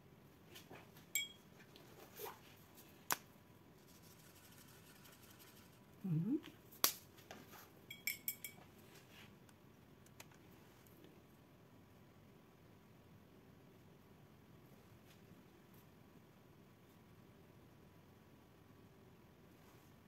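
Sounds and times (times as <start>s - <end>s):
tools clicking and clinking: 7.9s - 8.6s.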